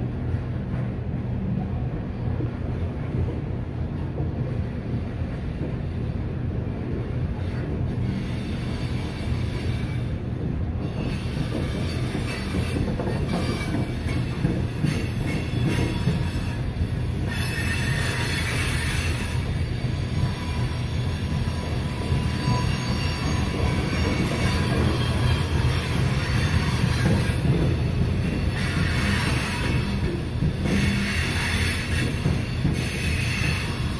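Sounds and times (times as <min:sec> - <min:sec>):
train wheels rumbling on rail: 0:00.0 - 0:33.9
wheel squeal: 0:10.8 - 0:27.7, 0:28.3 - 0:33.9.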